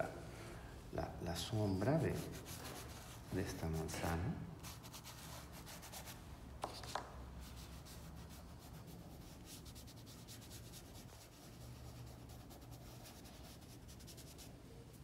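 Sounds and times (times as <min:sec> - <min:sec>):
pastel scratching on paper: 0:02.1 - 0:04.0, 0:04.6 - 0:14.6.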